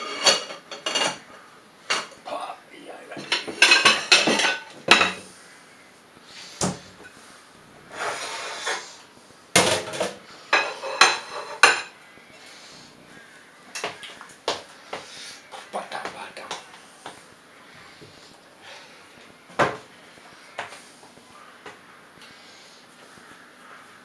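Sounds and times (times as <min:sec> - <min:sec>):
cookware clattering on stovetop: 0:00.0 - 0:01.3, 0:03.2 - 0:05.2, 0:09.6 - 0:12.0.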